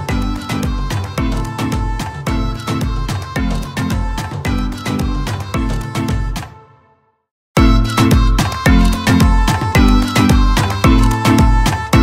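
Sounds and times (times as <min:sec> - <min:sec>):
background music with drum beat: 0:00.0 - 0:06.6, 0:07.6 - 0:12.0.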